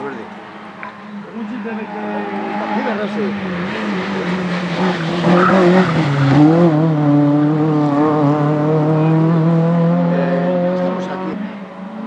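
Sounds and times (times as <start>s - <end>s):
race car engine at high revs: 0.0s - 12.0s
tyre squeal: 1.6s - 3.1s.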